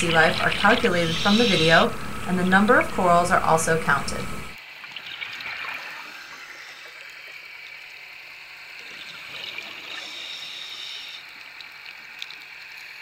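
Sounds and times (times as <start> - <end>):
underwater watery hiss: 0.4 - 2.2, 5.5 - 11.4.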